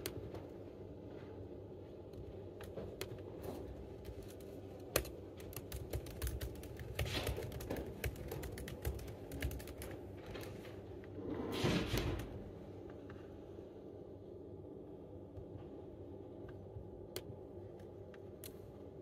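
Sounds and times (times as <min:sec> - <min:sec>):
laptop keyboard typing: 0:00.0 - 0:00.5, 0:02.0 - 0:10.6.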